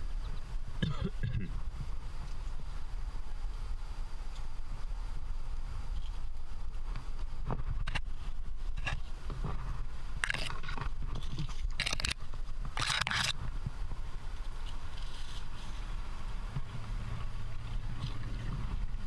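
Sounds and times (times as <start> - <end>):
steady low rumble: 0.0 - 19.0
shoes and gear scraping rock: 5.8 - 19.0.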